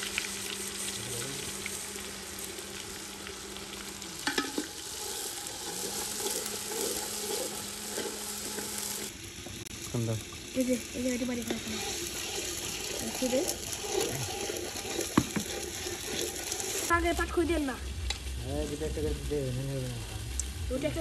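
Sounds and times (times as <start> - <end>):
rice sizzling in oil: 0.0 - 21.0
metal spoon scraping a pot: 4.2 - 9.1, 11.4 - 16.9.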